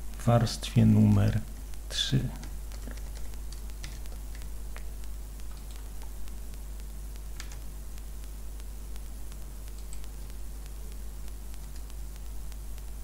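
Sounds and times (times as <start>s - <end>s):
electrical hum and hiss: 0.0s - 13.0s
keyboard and mouse clicks: 2.4s - 6.4s, 7.3s - 7.7s, 9.7s - 10.4s.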